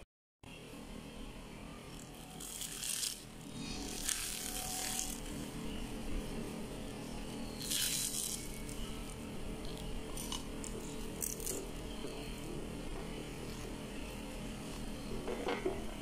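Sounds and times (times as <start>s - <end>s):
faint steady background hum: 0.4s - 16.0s
flatbread crackling and rustling: 2.0s - 6.2s.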